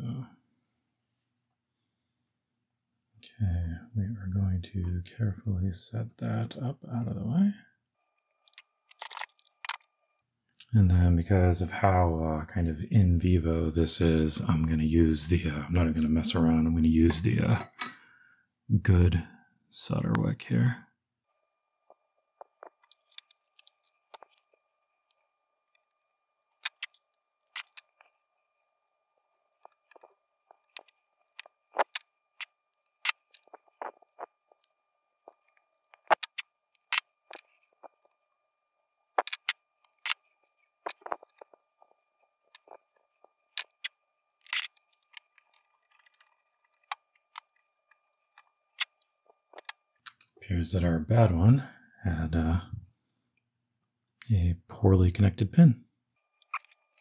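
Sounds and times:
faint steady high tone: 0:00.0 - 0:01.0, 0:03.2 - 0:07.8, 0:10.6 - 0:36.5.

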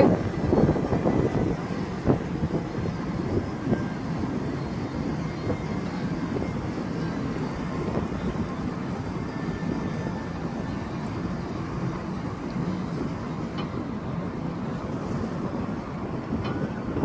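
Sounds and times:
bus engine rumble: 0:00.0 - 0:17.0
wind on the microphone: 0:00.0 - 0:17.0.

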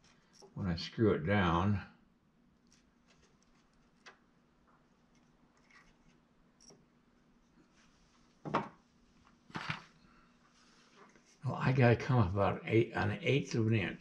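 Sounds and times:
small clicks and rubs: 0:00.0 - 0:00.6, 0:02.6 - 0:08.4, 0:09.1 - 0:11.4
wooden knocks: 0:08.4 - 0:08.8.

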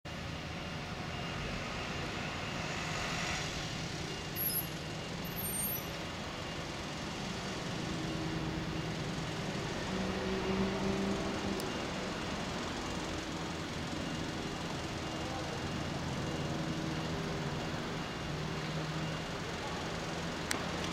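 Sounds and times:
engine hum: 0:00.1 - 0:20.9
road traffic passing: 0:00.1 - 0:20.9.

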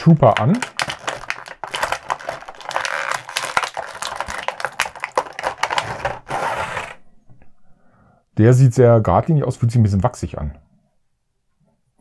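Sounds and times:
plastic tray crackling and clicking: 0:00.4 - 0:07.0.

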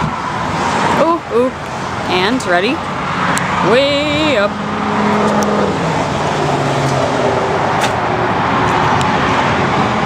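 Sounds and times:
loud road traffic: 0:00.0 - 0:10.0.

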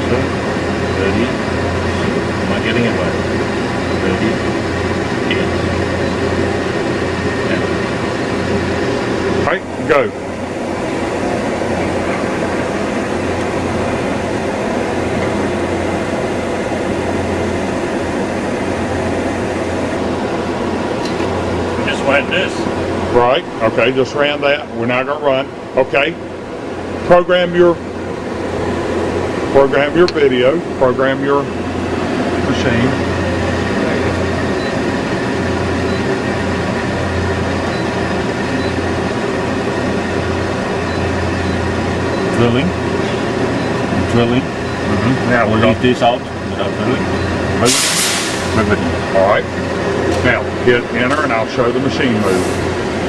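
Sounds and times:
machinery low hum: 0:00.0 - 0:53.0
machinery mechanical hiss: 0:26.8 - 0:53.0.

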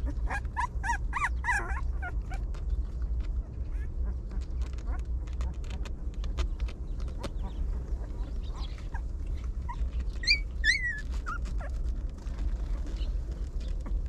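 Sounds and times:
puppies whimpering: 0:00.0 - 0:02.6, 0:07.0 - 0:14.0.

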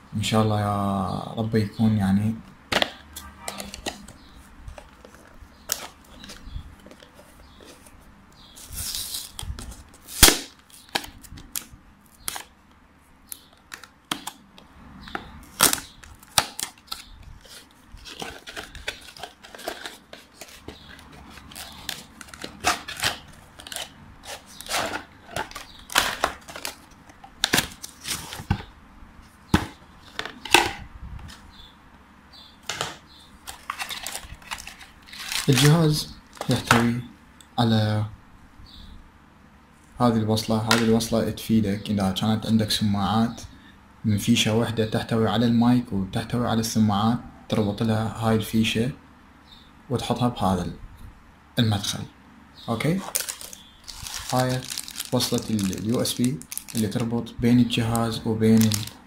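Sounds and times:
packaging rustle: 0:15.5 - 0:28.7, 0:32.8 - 0:36.7, 0:53.0 - 0:57.2, 0:57.8 - 0:59.0.

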